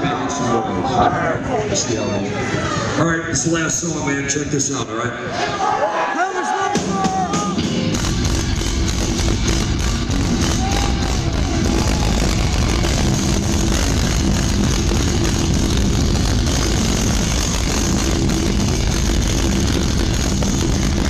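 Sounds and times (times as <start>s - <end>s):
death metal band playing live: 6.7s - 21.0s.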